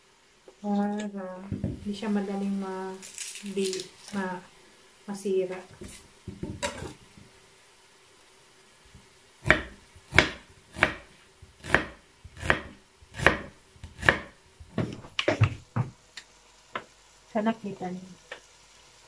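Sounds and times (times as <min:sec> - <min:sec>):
knife chopping on wooden board: 0:09.4 - 0:15.9.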